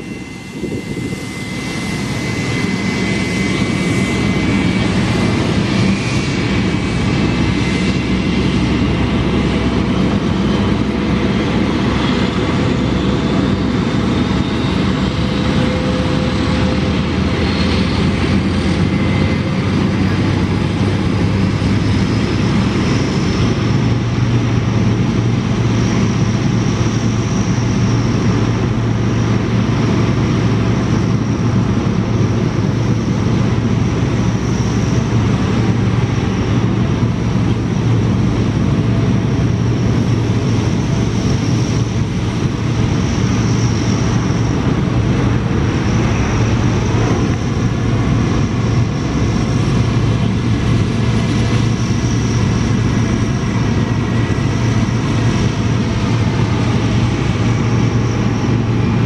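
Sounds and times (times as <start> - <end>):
high turbine whine: 0.0 - 59.0
propellers droning: 0.0 - 59.0.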